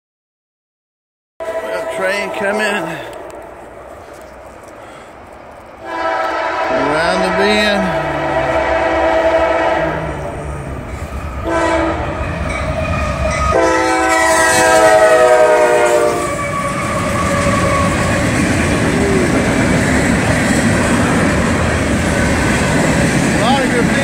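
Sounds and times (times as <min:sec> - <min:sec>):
locomotive horn blasts: 0:01.4 - 0:03.5, 0:05.8 - 0:10.2, 0:11.4 - 0:12.2, 0:13.5 - 0:18.0
freight train rumbling past: 0:01.4 - 0:24.0.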